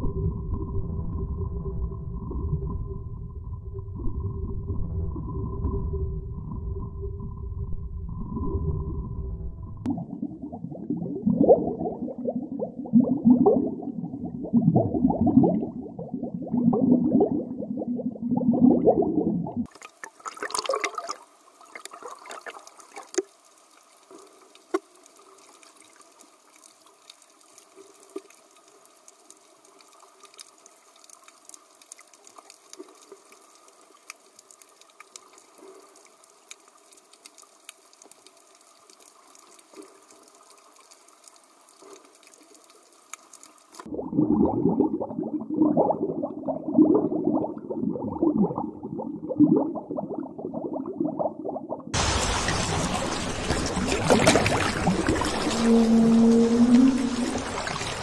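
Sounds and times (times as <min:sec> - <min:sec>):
surging underwater bubbling: 0:00.0 - 0:28.4, 0:39.2 - 0:58.0
underwater hiss with clicks: 0:21.6 - 0:43.9.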